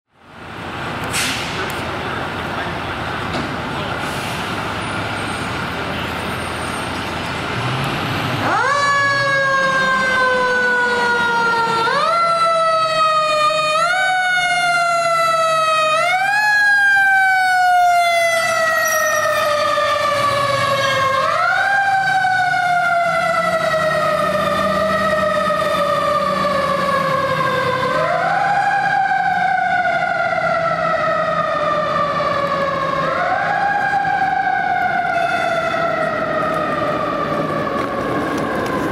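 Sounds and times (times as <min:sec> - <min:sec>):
street traffic: 0:00.1 - 0:38.9
fire engine siren: 0:00.2 - 0:38.9.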